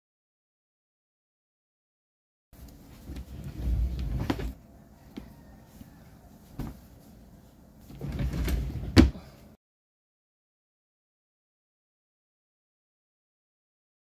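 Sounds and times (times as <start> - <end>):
drawer sliding on runners: 3.0 - 4.6, 7.9 - 9.2
drawer knocking shut: 8.1 - 9.2.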